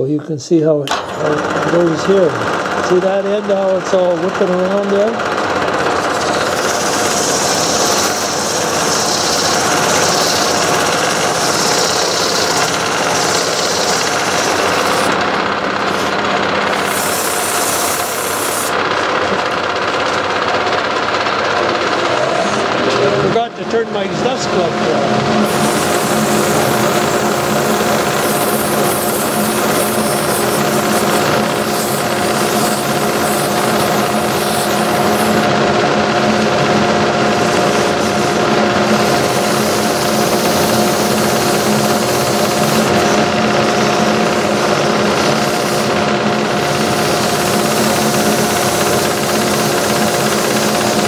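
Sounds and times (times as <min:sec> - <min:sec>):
wood lathe running: 0:00.9 - 0:51.0
sandpaper hissing on spinning wood: 0:05.8 - 0:18.8, 0:25.3 - 0:51.0
abrasive cloth hissing on wood: 0:06.2 - 0:15.2.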